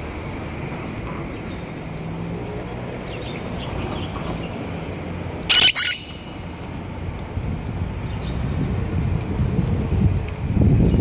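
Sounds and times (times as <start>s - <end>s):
street traffic rumble: 0.0s - 11.0s
parrot screeching: 5.5s - 6.3s.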